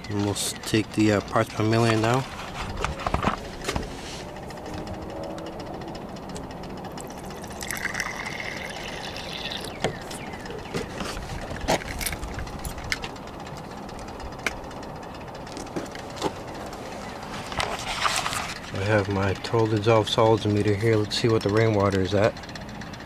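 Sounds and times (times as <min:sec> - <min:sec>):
water pouring into a cup: 0:07.0 - 0:09.8.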